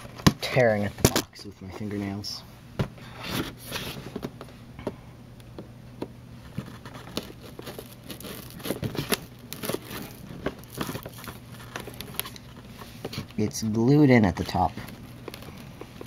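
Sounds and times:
fingernails scratching cardboard box: 6.7 - 12.3.

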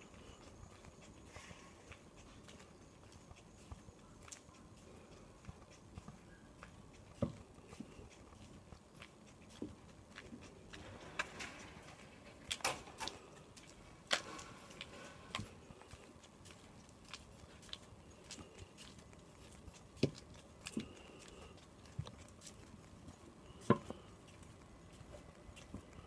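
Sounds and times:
footsteps on asphalt: 0.0 - 26.0.

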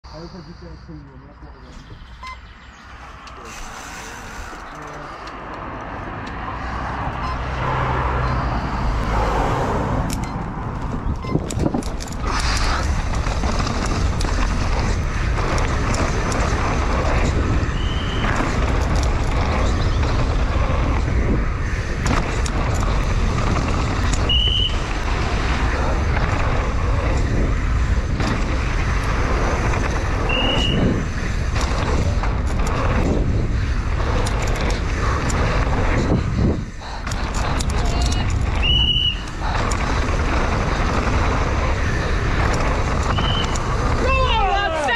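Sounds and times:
high squeaks: 1.7 - 5.2, 11.0 - 12.9
wind rushing: 1.9 - 44.9
bike tyres on dirt: 6.4 - 44.9
bike knocking and rattling: 10.1 - 44.9.

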